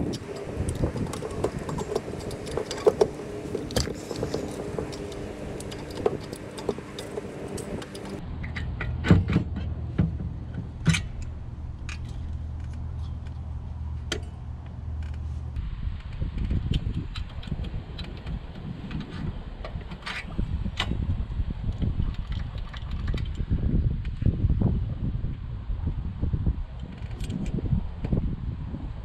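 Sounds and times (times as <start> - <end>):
steady low hum: 0.0 - 19.8.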